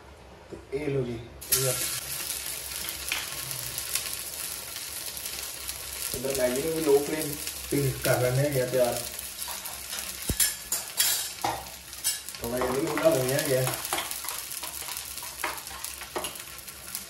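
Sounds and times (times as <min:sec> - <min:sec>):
cheese frying in a pan: 0:01.4 - 0:17.0
spatula scraping and tapping pan: 0:09.4 - 0:16.6.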